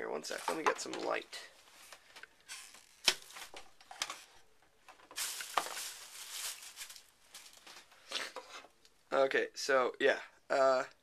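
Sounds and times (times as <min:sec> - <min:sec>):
rustling: 0:00.2 - 0:08.8.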